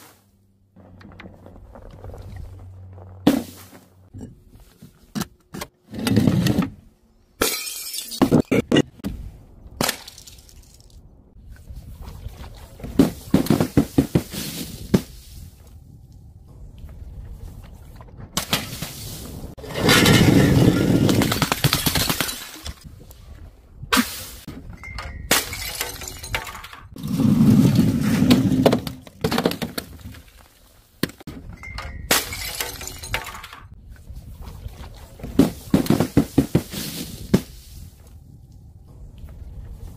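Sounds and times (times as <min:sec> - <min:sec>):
glass breaking on tiles: 0:07.4 - 0:08.3, 0:25.2 - 0:26.8, 0:31.9 - 0:33.6.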